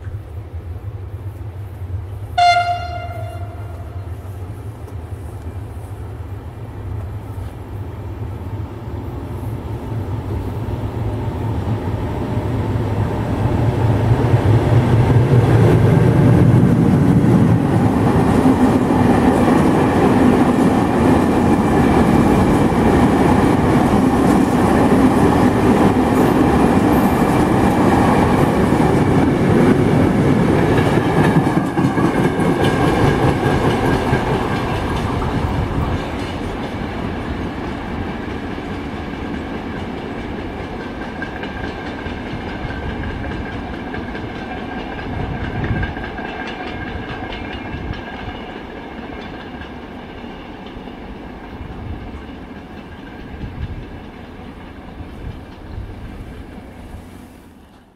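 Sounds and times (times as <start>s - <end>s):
freight train wagons rolling: 14.1s - 57.9s.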